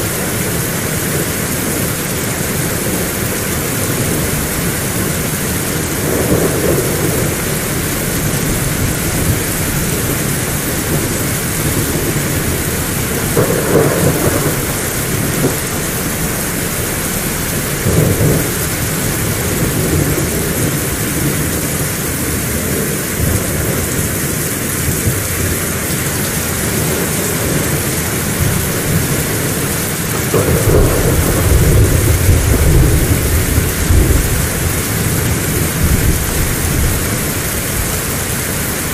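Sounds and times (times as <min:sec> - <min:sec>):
heavy rain falling: 0:00.0 - 0:38.9
thunder rumbling: 0:00.0 - 0:38.9.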